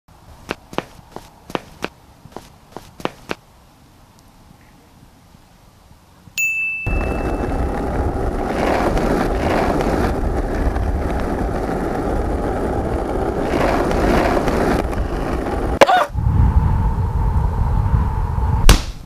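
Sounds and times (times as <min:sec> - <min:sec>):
skateboard wheels rolling on concrete: 0:00.1 - 0:03.5, 0:06.9 - 0:18.7.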